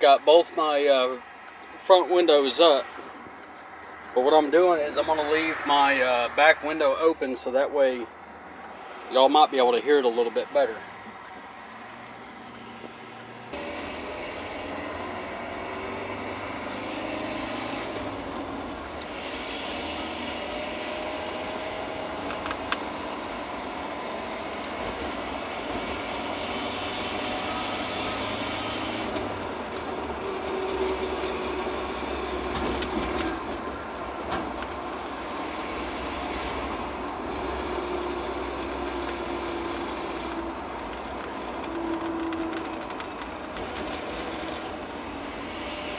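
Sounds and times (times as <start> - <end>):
man talking: 0.0 - 1.2, 1.8 - 2.9, 4.1 - 8.1, 9.1 - 10.8
engine rumble: 0.0 - 45.9
road noise: 0.0 - 45.9.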